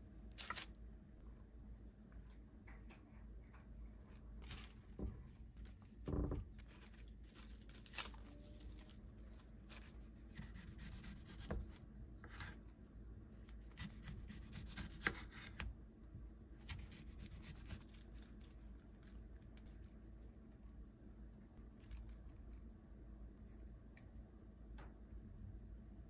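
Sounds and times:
lettuce leaves rustling: 0:06.5 - 0:10.1
knife cutting tomato on board: 0:10.3 - 0:12.6, 0:13.7 - 0:15.7, 0:16.6 - 0:17.9.

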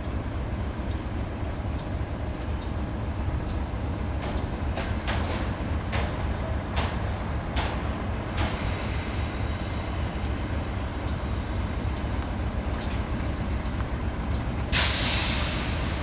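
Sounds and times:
locomotive engine rumbling: 0:00.0 - 0:16.0
air release hiss: 0:06.9 - 0:11.4, 0:14.7 - 0:16.0.

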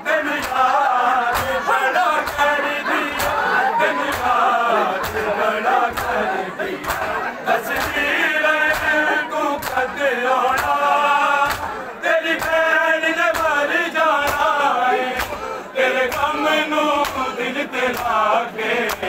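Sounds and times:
crowd of men chanting: 0:00.0 - 0:19.0
hands slapping chests: 0:01.3 - 0:02.5, 0:03.1 - 0:03.4, 0:05.0 - 0:06.2, 0:06.8 - 0:08.1, 0:08.7 - 0:09.9, 0:10.5 - 0:12.6, 0:13.3 - 0:13.6, 0:14.2 - 0:14.5, 0:15.1 - 0:16.4, 0:17.0 - 0:18.2.

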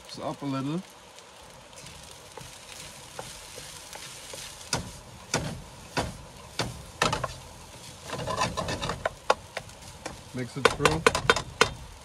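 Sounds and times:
rice sizzling in pan: 0:00.0 - 0:12.0
spoon knocking and scraping pan: 0:03.1 - 0:11.8.

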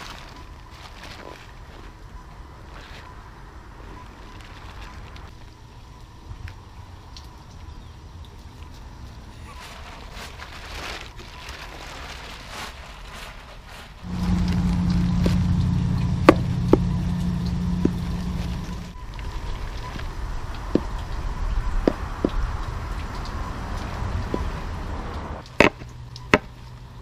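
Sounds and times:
faint outdoor noise: 0:00.0 - 0:27.0
low motor hum: 0:14.0 - 0:27.0.

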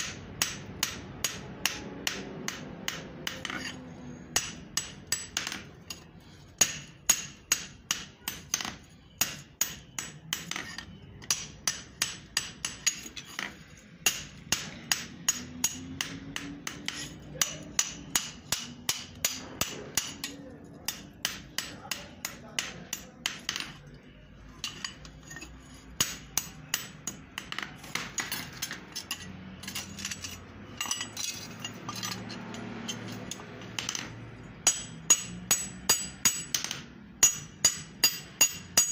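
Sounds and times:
hammer striking steel on anvil: 0:00.0 - 0:06.0, 0:06.6 - 0:23.8, 0:24.6 - 0:38.9.

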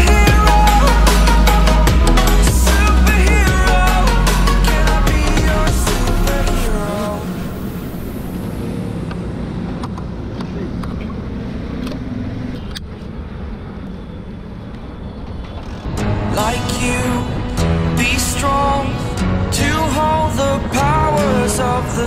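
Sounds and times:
music: 0:00.0 - 0:08.4, 0:15.8 - 0:22.0
vehicle engines and traffic rumble: 0:00.0 - 0:22.0.

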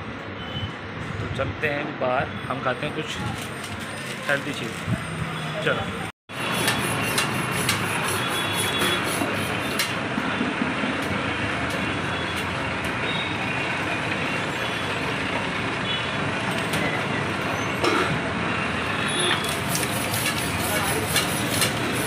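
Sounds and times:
street traffic engines: 0:00.0 - 0:22.0.

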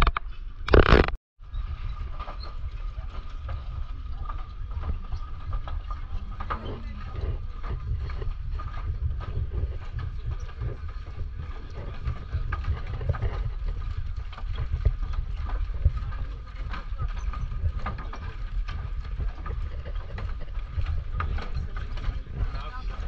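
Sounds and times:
low rumble: 0:00.0 - 0:23.0
footsteps on wooden planks: 0:02.0 - 0:23.0
people talking: 0:06.1 - 0:07.4, 0:21.1 - 0:23.0.

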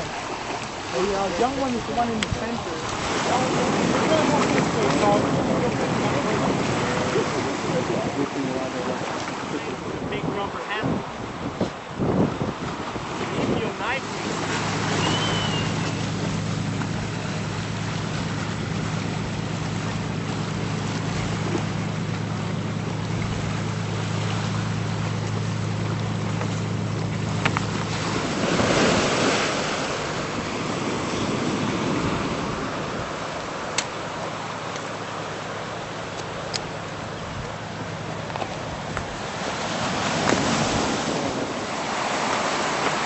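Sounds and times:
wind on microphone: 0:00.0 - 0:33.6, 0:37.1 - 0:43.0
surf washing on shore: 0:00.0 - 0:43.0
steady low hum: 0:15.6 - 0:30.9.

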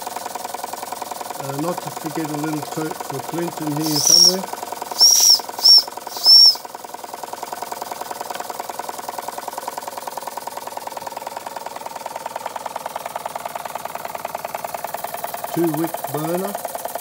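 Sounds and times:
toy steam engine running: 0:00.0 - 0:06.7, 0:14.8 - 0:17.0
steam whistle toot: 0:03.8 - 0:06.6.

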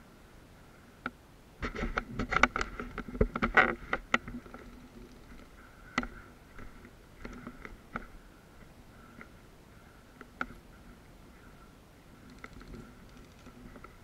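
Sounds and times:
sharp clicks: 0:12.2 - 0:14.0.

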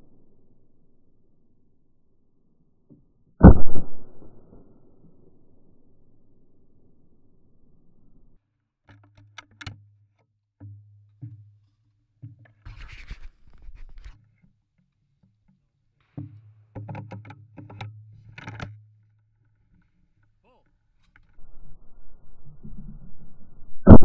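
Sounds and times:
rubbing rustle: 0:12.6 - 0:14.4.

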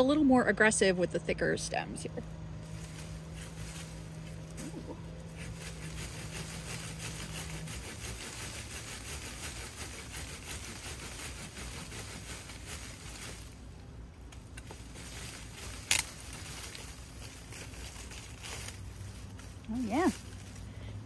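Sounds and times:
hand saw cutting wood: 0:05.3 - 0:13.6.

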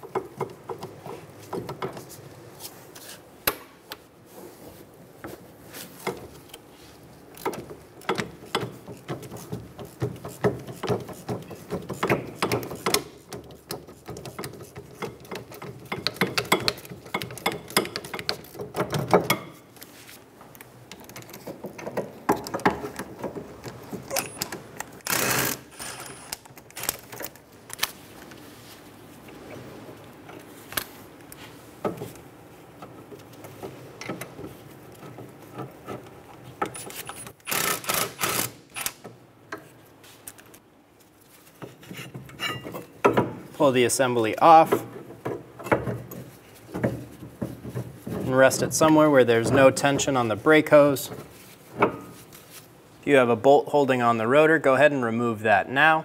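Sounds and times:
ratcheting wrench clicking: 0:25.0 - 0:27.0, 0:36.7 - 0:39.1.

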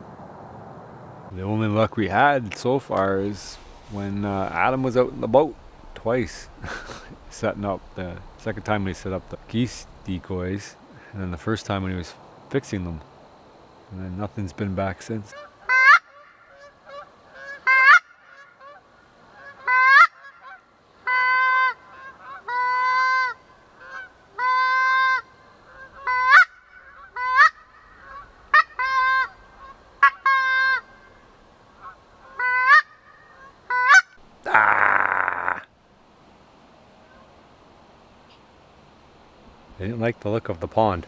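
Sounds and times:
geese honking: 0:03.1 - 0:10.2, 0:15.3 - 0:34.2.

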